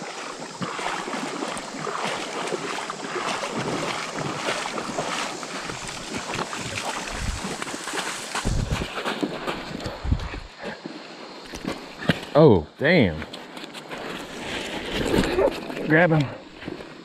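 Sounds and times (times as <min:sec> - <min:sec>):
footsteps splashing through water: 0:00.0 - 0:12.3
wind buffeting microphone: 0:05.8 - 0:07.6, 0:08.4 - 0:10.6.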